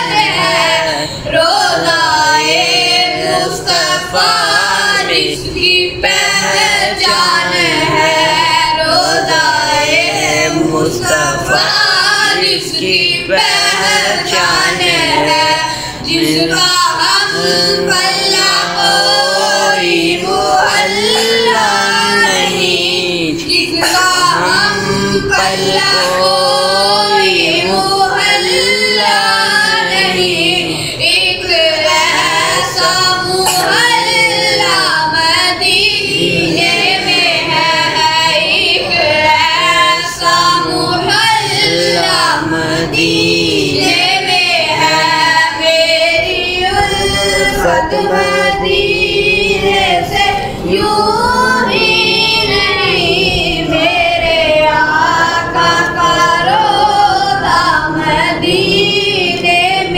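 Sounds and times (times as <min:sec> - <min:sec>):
boy singing into a microphone: 0:00.0 - 0:59.9.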